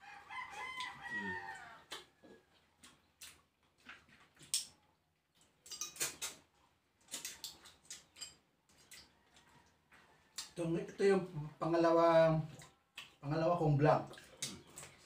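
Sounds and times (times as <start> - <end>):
mouth smacks and clicks: 1.8 - 2.2, 2.8 - 4.8, 5.4 - 6.5, 12.5 - 13.2.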